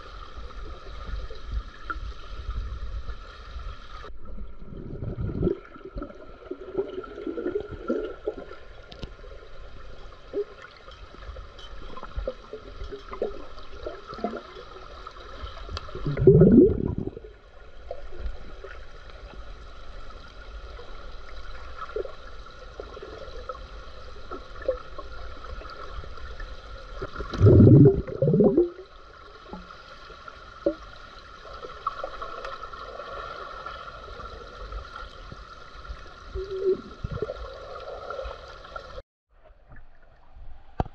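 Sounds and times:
underwater air bubbles gurgling: 0:04.0 - 0:10.7, 0:13.1 - 0:18.8, 0:21.5 - 0:29.8.

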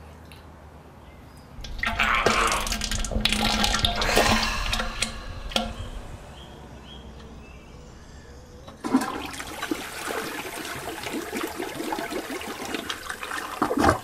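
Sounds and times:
toilet flushing: 0:01.6 - 0:06.1, 0:08.7 - 0:14.0.

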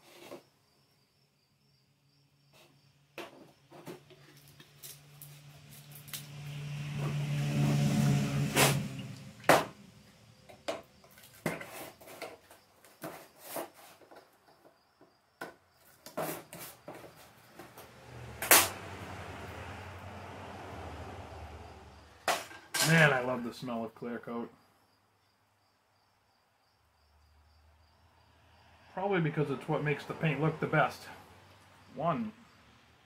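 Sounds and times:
metal cup and paint cans clinking: 0:22.3 - 0:23.1.

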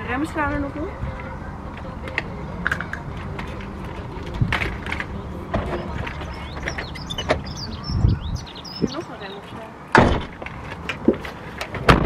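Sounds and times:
steady low rumble: 0:00.0 - 0:09.5
pushchair frame clicking and creaking: 0:02.0 - 0:07.4.

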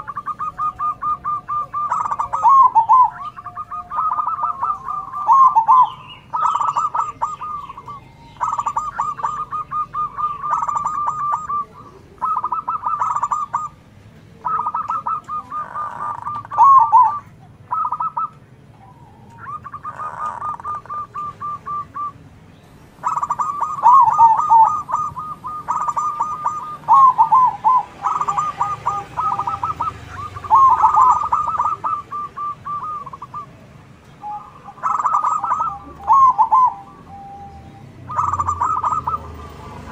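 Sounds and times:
doves cooing: 0:00.0 - 0:39.9.

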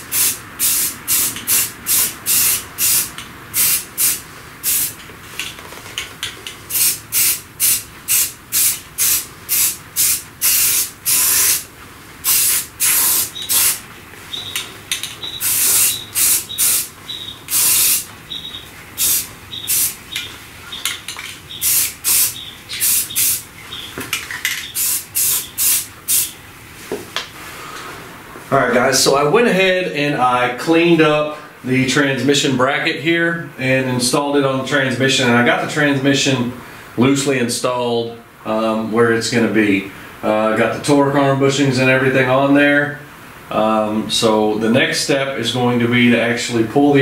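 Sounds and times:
spray-paint can hissing: 0:00.0 - 0:05.0, 0:06.7 - 0:13.8, 0:15.3 - 0:16.9, 0:17.5 - 0:18.1, 0:19.0 - 0:20.0, 0:21.5 - 0:23.4, 0:24.6 - 0:26.4.

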